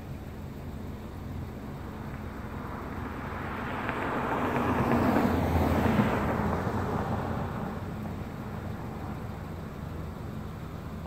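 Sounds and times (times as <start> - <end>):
vehicle driving past: 1.8 - 9.8.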